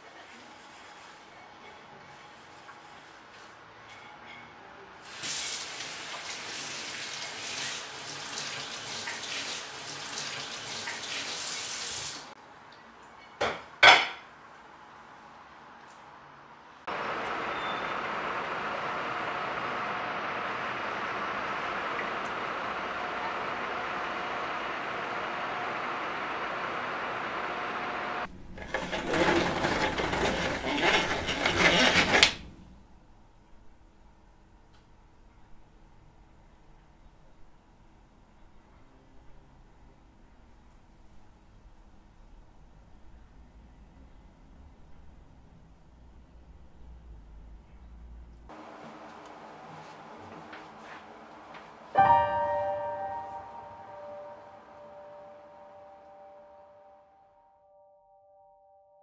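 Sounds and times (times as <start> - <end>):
distant city traffic hum: 12.4 - 28.7, 35.2 - 57.0
roller shutter rattling down: 28.4 - 32.5.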